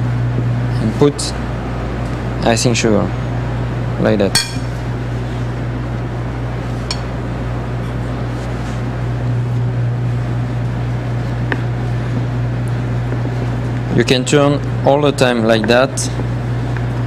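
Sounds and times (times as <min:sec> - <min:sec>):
low hum: 0:03.2 - 0:14.9.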